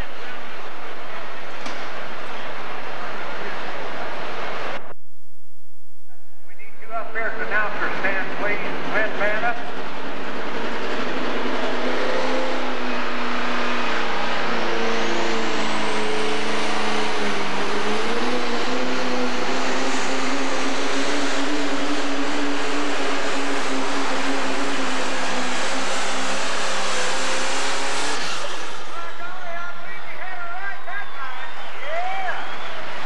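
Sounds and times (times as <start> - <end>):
high turbo whine: 0.0 - 33.0
diesel engine running under load: 7.2 - 30.5.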